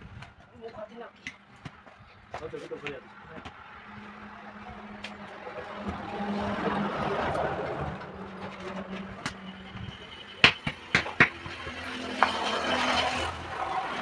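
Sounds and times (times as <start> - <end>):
lorry engine and tyre noise: 0.0 - 14.0
sharp knocks: 10.4 - 11.6.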